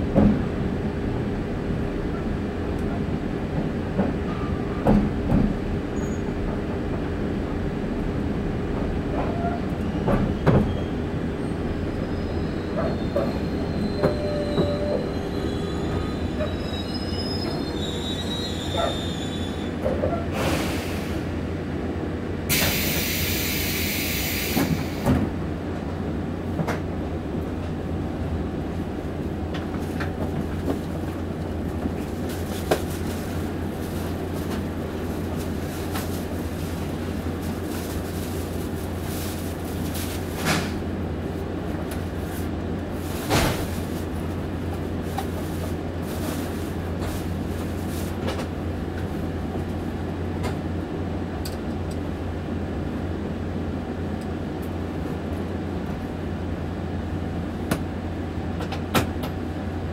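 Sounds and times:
train cabin low hum: 0.0 - 59.9
loud hiss: 22.5 - 25.0.

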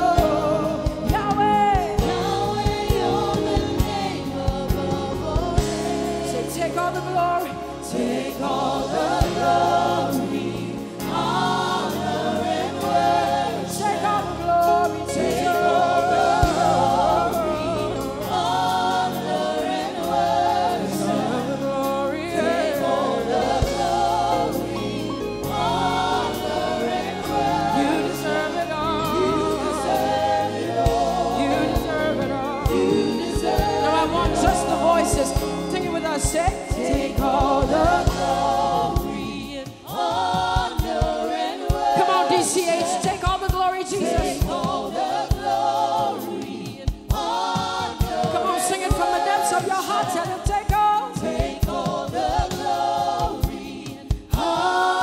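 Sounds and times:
keyboard and bass: 0.0 - 42.3
gospel singing: 0.0 - 55.0.

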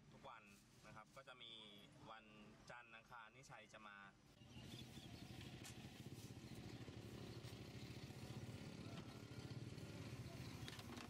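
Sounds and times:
vehicle engine idling: 4.4 - 11.0.

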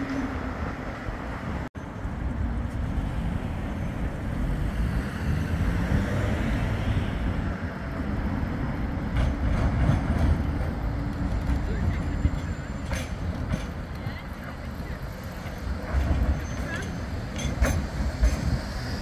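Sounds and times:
low rumble of road traffic: 0.0 - 19.0
tram approaching on track: 0.0 - 19.0.

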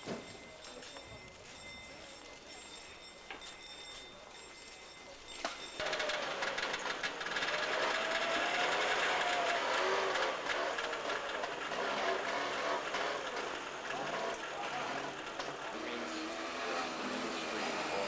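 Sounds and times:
small engine rattling: 5.8 - 18.0.

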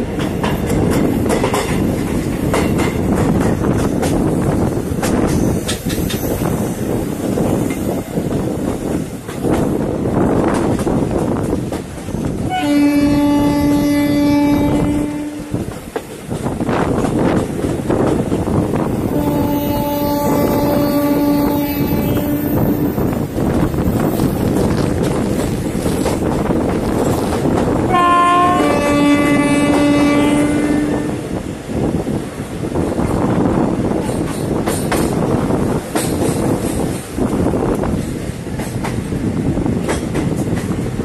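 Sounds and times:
train rumble and rattle: 0.0 - 41.0
wind rushing past: 0.0 - 41.0
locomotive horn blast: 12.5 - 15.6, 19.1 - 22.9, 27.9 - 31.2.

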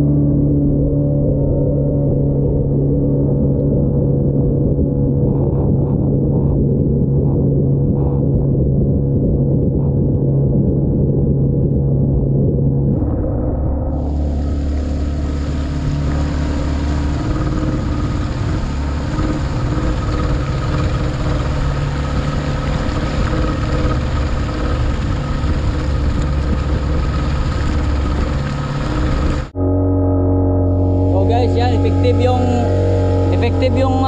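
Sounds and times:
speedboat engine running: 0.0 - 34.0
water rushing along hull: 13.9 - 29.6, 30.7 - 34.0.

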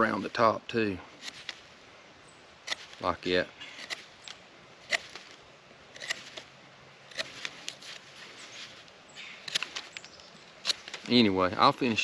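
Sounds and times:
knife scraping wood: 1.1 - 1.7, 2.6 - 3.0, 3.6 - 4.1, 4.8 - 6.5, 7.1 - 10.0, 10.6 - 11.2.

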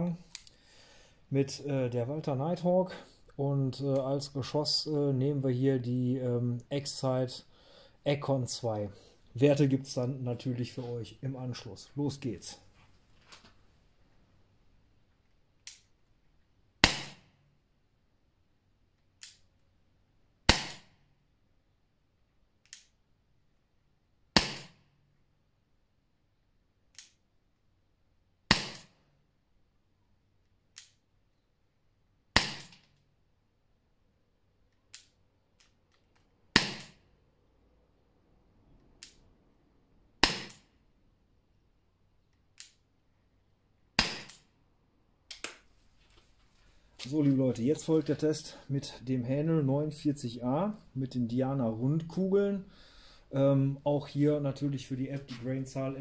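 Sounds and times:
air pistol shots: 16.8 - 17.4, 20.5 - 21.0, 24.4 - 24.9, 28.5 - 29.0, 32.4 - 32.8, 36.5 - 37.0, 40.2 - 40.7, 44.0 - 44.4.

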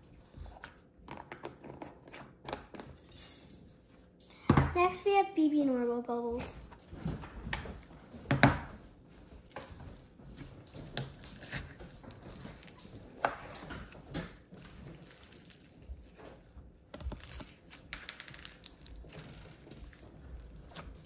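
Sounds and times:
slime squishing and crackling: 11.0 - 21.0.

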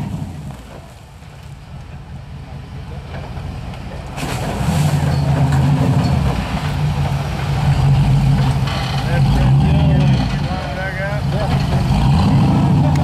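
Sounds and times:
buggy engine revving: 0.0 - 0.9, 4.1 - 13.0.

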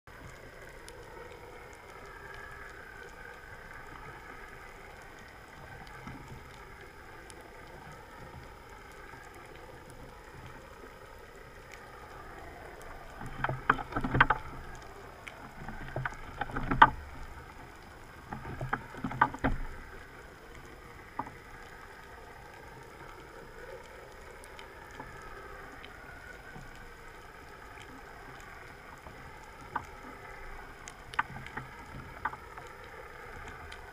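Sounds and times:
underwater wavering hum: 0.1 - 33.9
sharp knocks and crackles: 12.8 - 21.5, 27.7 - 33.9.

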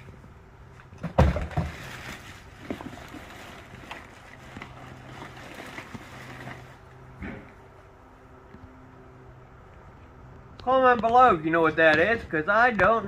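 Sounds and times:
plastic bag rustling: 1.3 - 7.2
small clicks of items shifting: 1.9 - 6.8.

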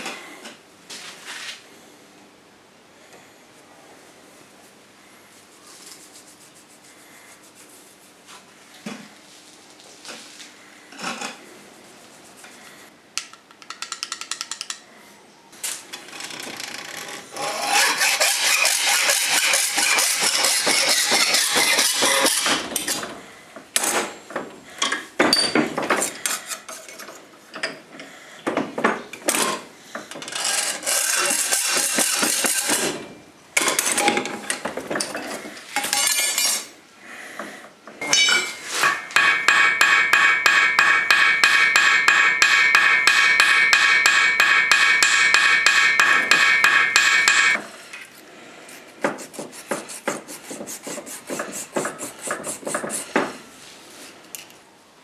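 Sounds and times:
pitched metal scraping: 17.3 - 23.0, 30.2 - 33.0
hand file strokes: 17.4 - 22.6, 30.3 - 32.8, 48.7 - 54.2.

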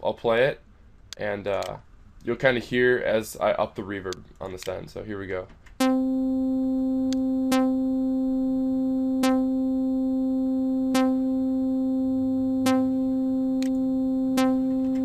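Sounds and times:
synthesizer note with reverb: 5.8 - 15.0.

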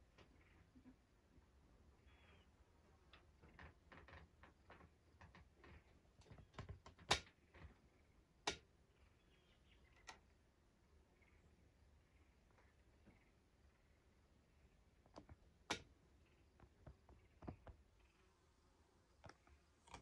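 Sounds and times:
faint clicks and taps: 3.0 - 8.7, 9.8 - 10.4, 15.0 - 18.1, 19.2 - 20.0.

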